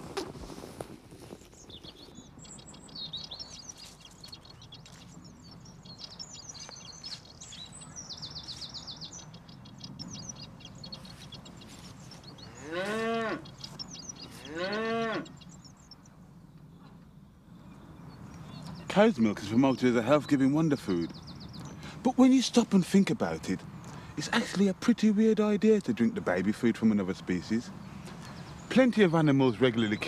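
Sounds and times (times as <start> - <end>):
small birds chirping: 0.0 - 30.0
cow mooing: 12.4 - 13.5, 14.4 - 15.4.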